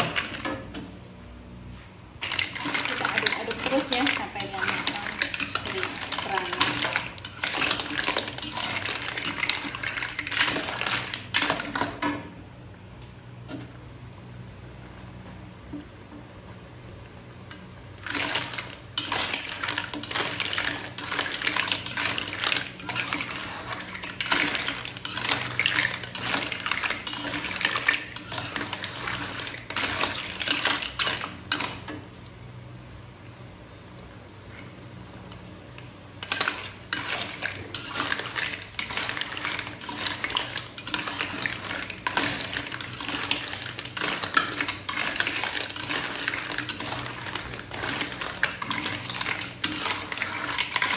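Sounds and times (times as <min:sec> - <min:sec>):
metal spoon scraping a wok: 0:02.3 - 0:11.2, 0:18.1 - 0:31.7, 0:36.4 - 0:50.9.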